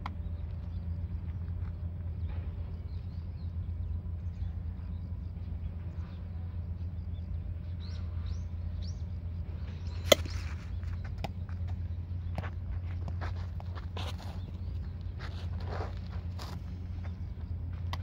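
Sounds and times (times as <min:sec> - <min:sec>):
birds chirping: 0:00.0 - 0:18.0
low outdoor rumble: 0:00.0 - 0:18.0
bat striking baseball: 0:10.0 - 0:11.3.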